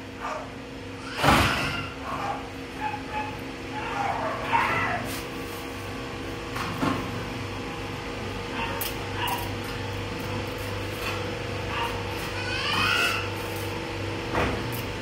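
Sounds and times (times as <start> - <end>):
dogs whining and yipping: 1.8 - 5.1, 11.7 - 13.4
steady low hum: 1.9 - 15.0.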